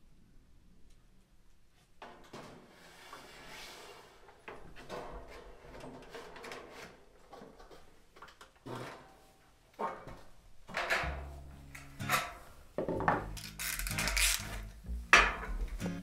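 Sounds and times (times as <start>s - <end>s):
metal panel scraping against wall: 2.4s - 7.2s.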